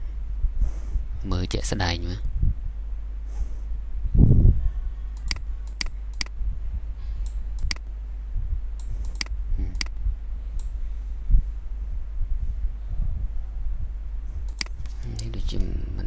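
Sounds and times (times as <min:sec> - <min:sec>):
steady low hum: 0:00.0 - 0:16.0
computer mouse clicks: 0:05.2 - 0:06.3, 0:07.2 - 0:07.8, 0:08.8 - 0:10.0, 0:10.6 - 0:10.8, 0:14.4 - 0:15.7.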